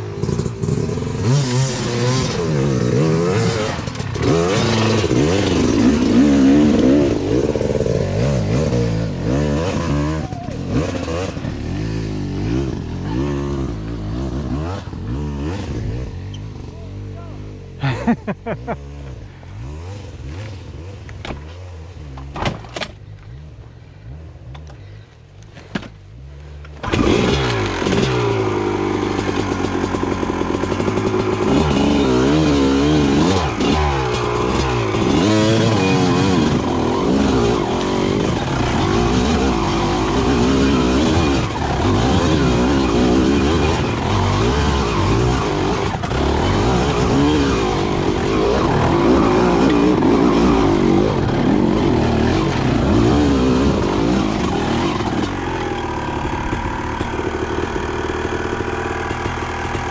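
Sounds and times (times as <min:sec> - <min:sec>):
dirt bike engine revving: 0:00.0 - 0:22.4, 0:26.1 - 0:59.9.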